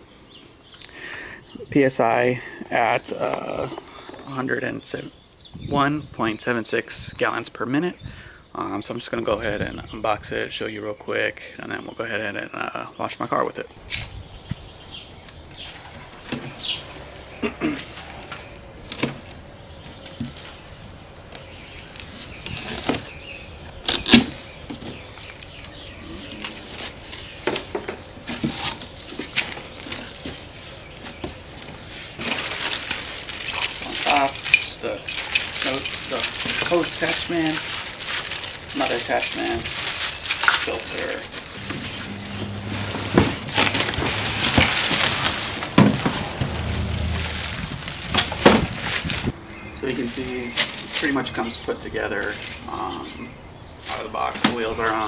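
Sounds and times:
plastic wrapping crinkling: 31.0s - 42.7s, 43.5s - 49.4s
cardboard scraping and rustling: 40.4s - 49.4s.

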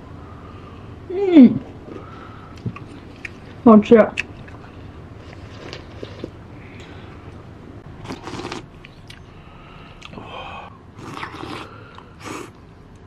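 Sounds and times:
person slurping soup: 8.0s - 8.7s, 11.0s - 12.6s.

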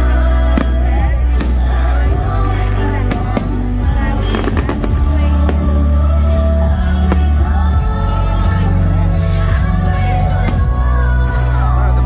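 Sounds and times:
fireworks bursting: 0.6s - 2.2s, 3.0s - 6.0s.

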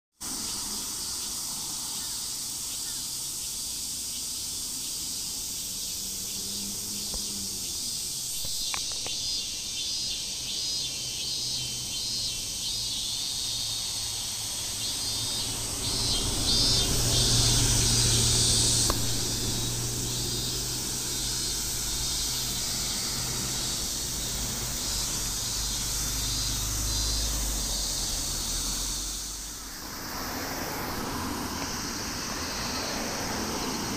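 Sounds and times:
insects chirping: 0.2s - 33.9s
bus driving past: 5.0s - 33.9s.

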